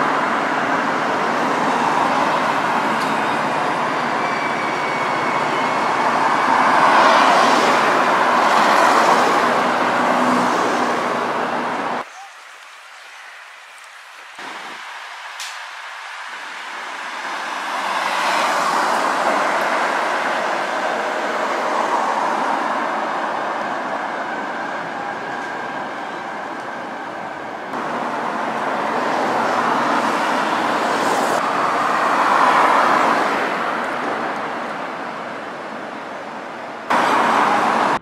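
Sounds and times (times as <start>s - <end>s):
cars driving past: 0.0s - 12.0s, 16.0s - 23.7s, 27.7s - 36.0s, 36.9s - 38.0s
buses driving past: 0.0s - 38.0s.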